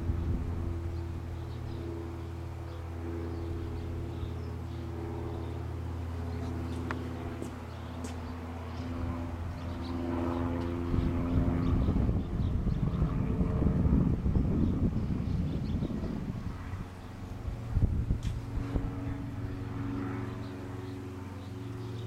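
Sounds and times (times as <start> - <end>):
wind buffeting microphone: 0.0 - 2.5, 8.4 - 20.4
engine drone: 0.0 - 22.0.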